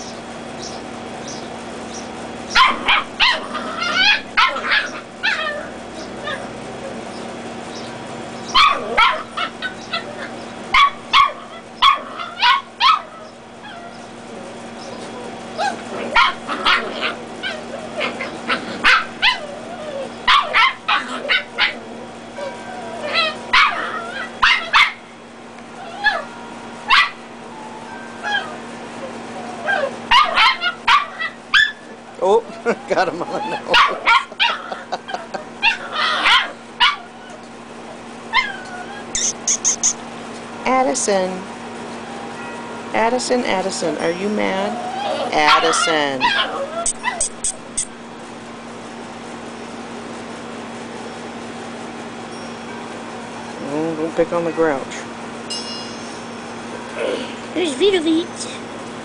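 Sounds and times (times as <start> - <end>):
puppies yapping and barking: 0.0 - 40.6, 41.5 - 58.8
low hum: 55.4 - 58.7.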